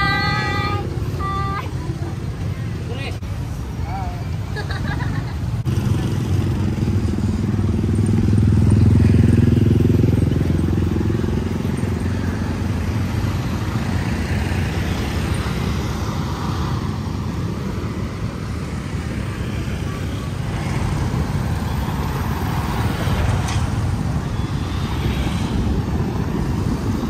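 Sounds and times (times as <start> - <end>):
vehicle engine passing by: 5.6 - 27.0.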